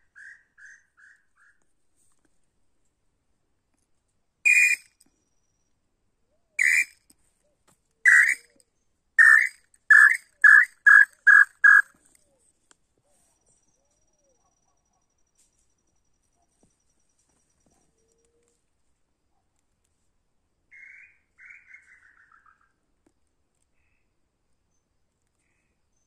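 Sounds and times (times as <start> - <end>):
bird whistled song: 4.5 - 5.7, 6.6 - 7.0, 8.1 - 8.5, 9.2 - 11.9.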